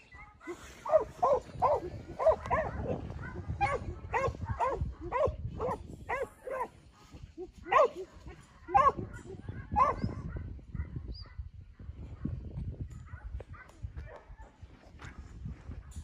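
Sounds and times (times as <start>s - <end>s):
dog barking: 0.2s - 6.8s, 7.6s - 11.5s, 13.0s - 15.2s.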